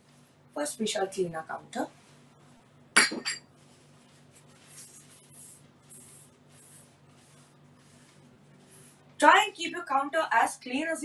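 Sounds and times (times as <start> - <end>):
cloth wiping table: 0.0 - 2.7, 3.5 - 9.5.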